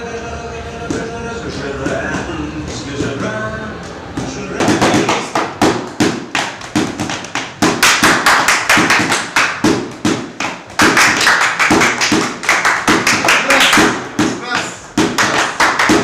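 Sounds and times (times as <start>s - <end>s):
drumsticks striking padded chair: 4.2s - 16.0s.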